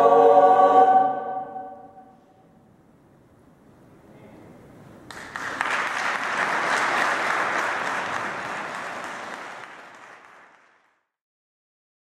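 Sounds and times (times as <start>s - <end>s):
audience applauding: 5.1s - 11.1s.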